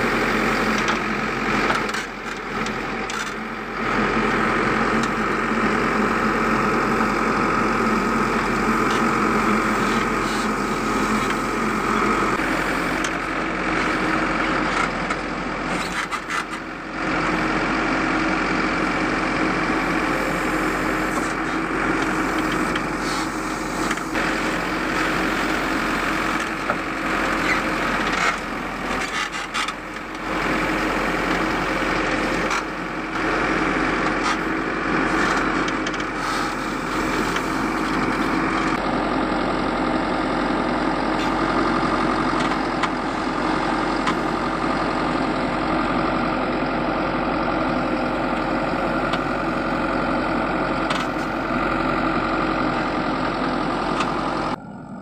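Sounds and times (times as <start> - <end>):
backhoe diesel engine running: 0.0 - 55.0.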